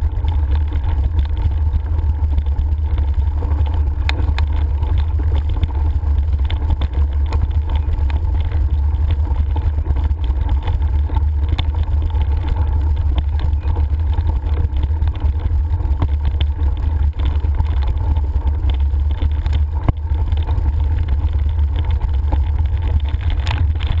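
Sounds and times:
vehicle rumble on gravel: 0.0 - 24.0.

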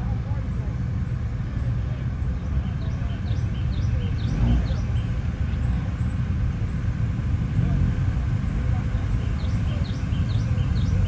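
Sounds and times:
faint distant voices: 0.0 - 11.0
bird chirping: 2.2 - 5.9, 9.1 - 11.0.

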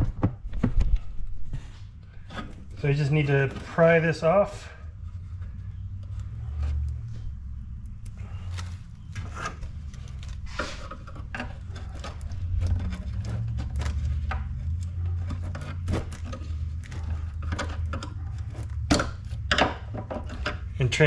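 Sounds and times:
plastic clicks and scrapes: 8.0 - 20.7.

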